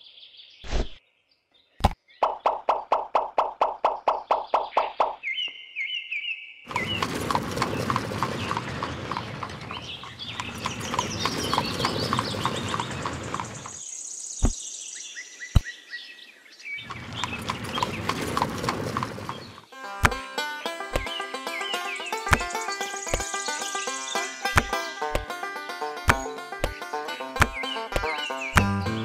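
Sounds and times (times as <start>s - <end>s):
cart rolling rumble: 6.7s - 13.8s, 16.9s - 19.7s
hooves clip-clopping: 6.7s - 13.8s, 16.9s - 20.2s, 22.1s - 23.4s, 24.5s - 29.0s
short thuds: 16.9s - 20.2s, 20.9s - 21.2s, 22.3s - 23.4s, 24.5s - 25.4s, 26.1s - 29.0s.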